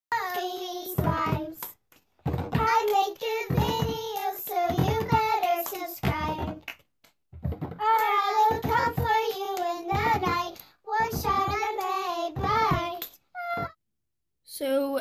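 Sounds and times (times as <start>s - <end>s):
child singing unaccompanied: 0.1s - 1.8s, 2.5s - 6.7s, 7.7s - 13.8s.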